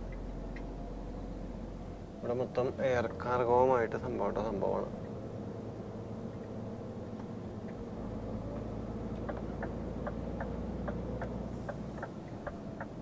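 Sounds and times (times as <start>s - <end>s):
truck engine drone in cab: 0.0s - 13.0s
turn indicator ticking: 8.5s - 13.0s.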